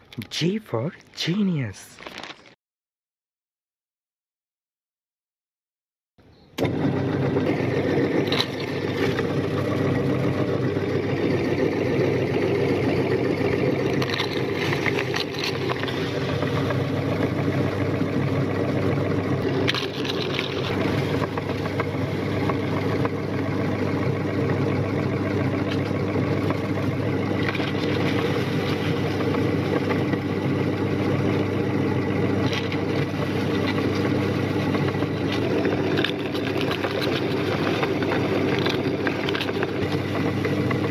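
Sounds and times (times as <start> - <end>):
biscuits crunching: 1.0 - 2.6, 14.0 - 17.2, 19.5 - 21.9, 32.4 - 40.8
meat grinder motor running: 6.6 - 40.9.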